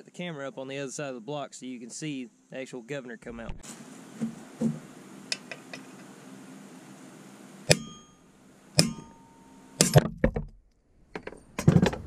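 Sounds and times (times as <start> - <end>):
hammer blows on steel punch: 7.7 - 8.2, 8.8 - 10.1.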